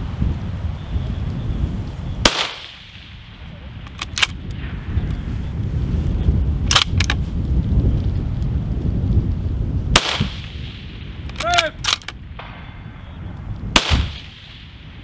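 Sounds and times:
rifle shots: 0:02.2 - 0:04.4, 0:09.9 - 0:12.7, 0:13.7 - 0:14.9.

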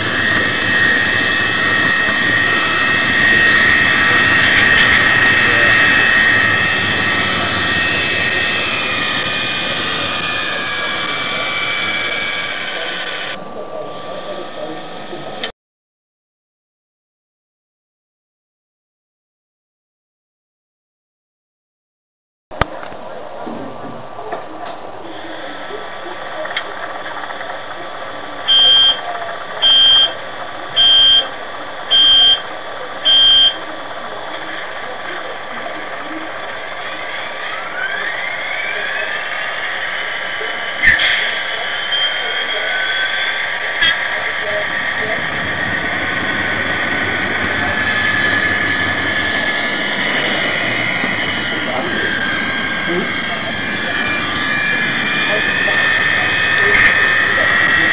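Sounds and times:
loud electronic beeps: 0:00.0 - 0:13.4, 0:28.4 - 0:33.7, 0:41.7 - 0:57.9
model train running on track: 0:00.0 - 0:15.5, 0:22.6 - 0:57.9
simulated diesel engine drone: 0:00.0 - 0:15.5, 0:22.5 - 0:57.9.

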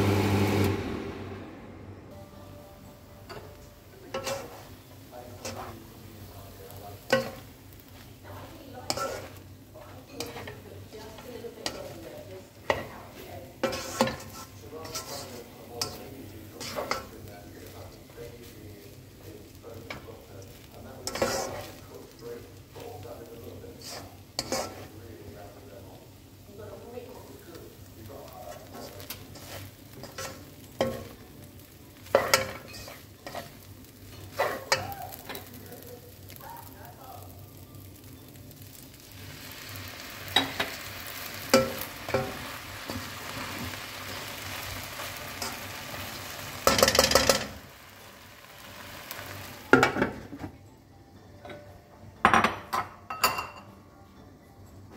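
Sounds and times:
faint sizzle from pan: 0:00.0 - 0:01.4, 0:02.1 - 0:52.4
spatula scraping a wok: 0:04.0 - 0:18.6, 0:19.8 - 0:22.8, 0:23.6 - 0:25.0, 0:28.5 - 0:36.7, 0:37.9 - 0:49.6.

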